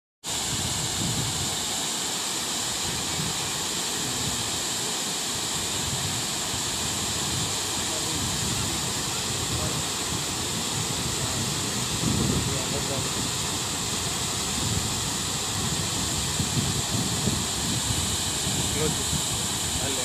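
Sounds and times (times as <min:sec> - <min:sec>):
waterfall rushing: 0:00.3 - 0:20.0.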